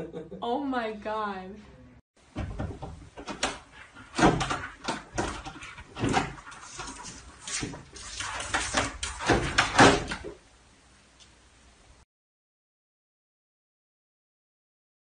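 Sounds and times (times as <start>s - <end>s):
bumps against door: 2.3s - 6.5s
cat claws scraping wooden door: 2.6s - 10.3s.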